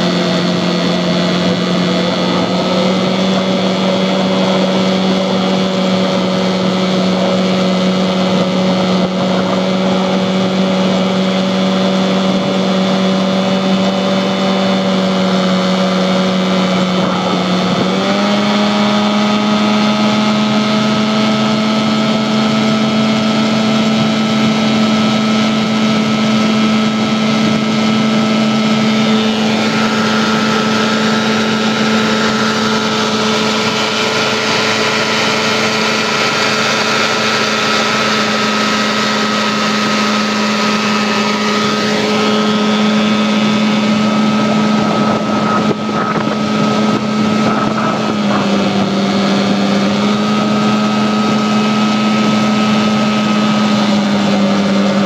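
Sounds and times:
outboard motor buzzing drone: 0.0 - 55.0
rushing water and wind: 0.0 - 55.0.

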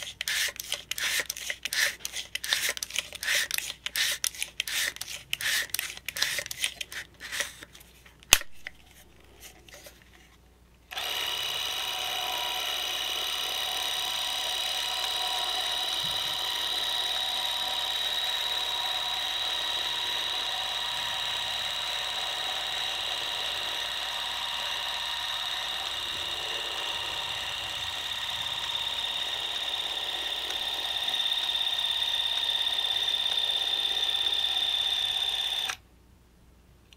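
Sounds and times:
clockwork film drive whirring: 10.9 - 35.8.

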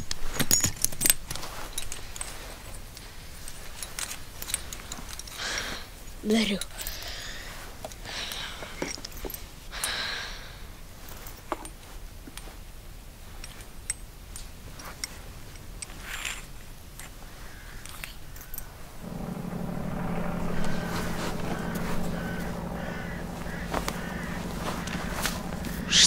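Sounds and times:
small metallic clicks: 17.8 - 26.0
low hum with overtones: 19.0 - 26.0.

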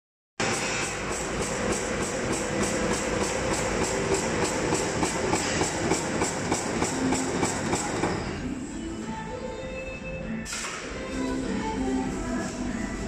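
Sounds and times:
bag making machine strokes: 0.4 - 8.5.

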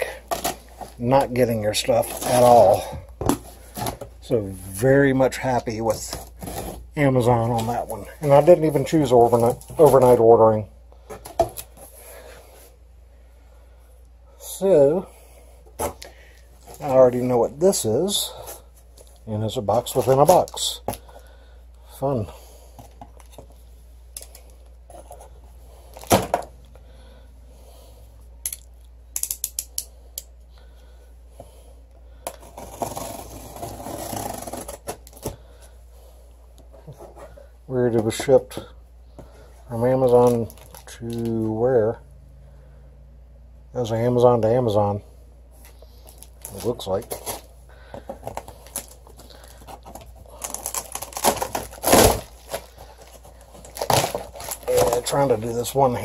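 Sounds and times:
cardboard boxes rustling and scraping: 0.2 - 4.3, 5.3 - 10.2, 32.3 - 35.4, 36.6 - 38.6, 46.0 - 55.5
blade scraping tape and cardboard: 32.4 - 35.3.

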